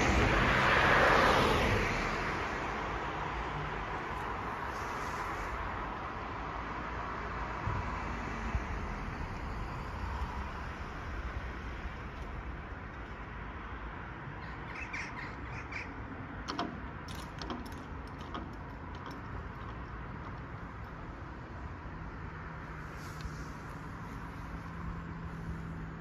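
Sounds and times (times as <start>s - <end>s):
road traffic: 0.0s - 26.0s
wind: 0.0s - 26.0s
bird calling: 14.4s - 16.0s.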